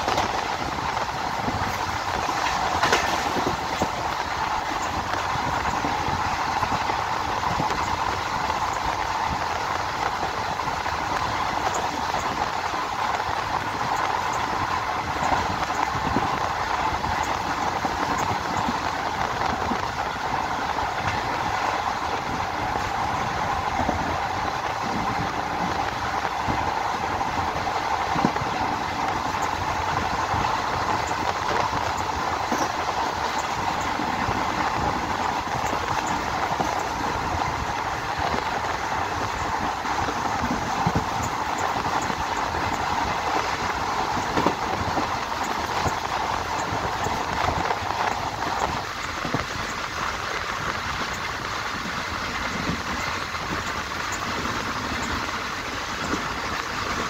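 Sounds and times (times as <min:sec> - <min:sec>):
train wheels roaring on rails: 0:00.0 - 0:57.0.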